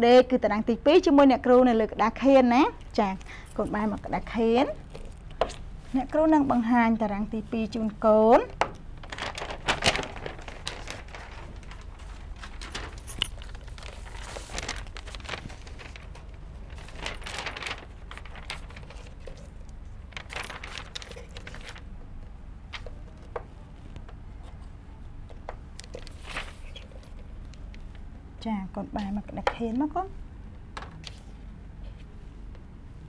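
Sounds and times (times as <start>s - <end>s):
paper rustling and crackling: 8.4s - 24.6s, 25.3s - 28.1s.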